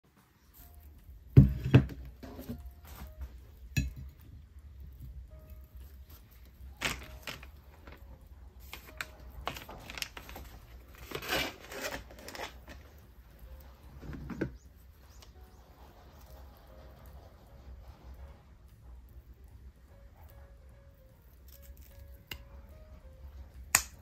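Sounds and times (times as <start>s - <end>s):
rustles crinkles and light knocks: 0.1s - 18.4s.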